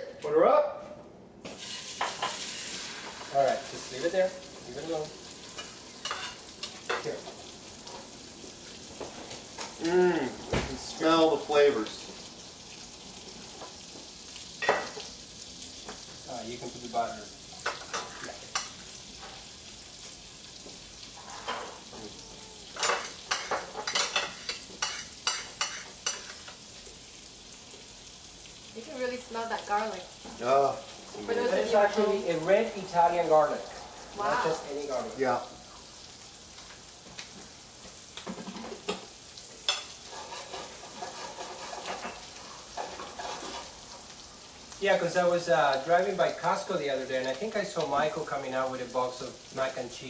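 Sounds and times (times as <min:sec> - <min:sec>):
garlic sizzling in butter: 0:01.4 - 0:50.0
utensil scraping skillet: 0:05.4 - 0:08.2, 0:21.1 - 0:21.9, 0:22.7 - 0:26.6, 0:38.3 - 0:44.2.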